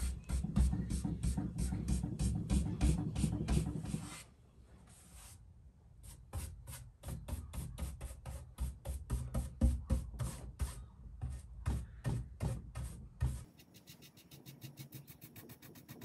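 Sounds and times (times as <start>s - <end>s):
paintbrush stroking on wood: 13.4s - 16.0s.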